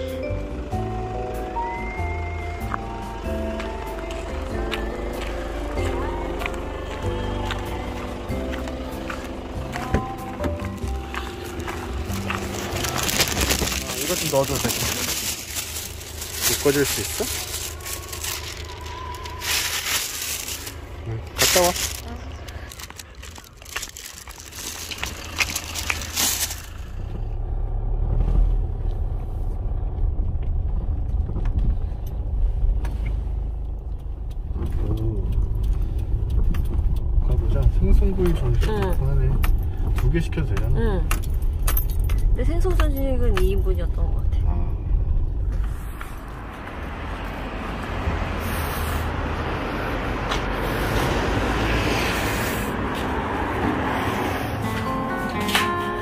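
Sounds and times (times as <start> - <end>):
car cabin rumble while driving: 0.0 - 49.3.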